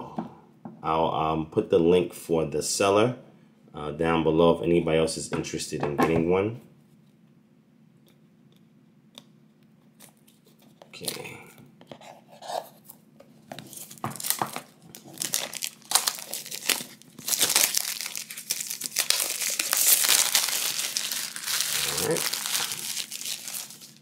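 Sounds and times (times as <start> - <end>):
plastic shrink wrap crinkling: 13.6 - 24.0.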